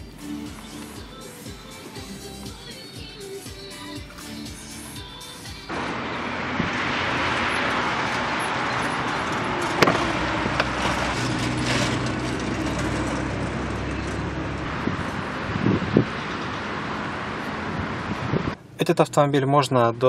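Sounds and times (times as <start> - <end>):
car road noise: 0.0 - 20.0.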